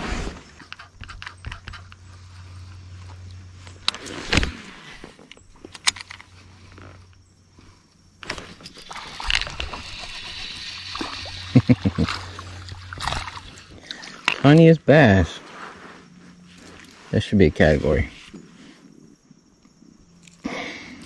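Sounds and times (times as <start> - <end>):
fishing reel clicks and rattles: 8.2 - 10.9.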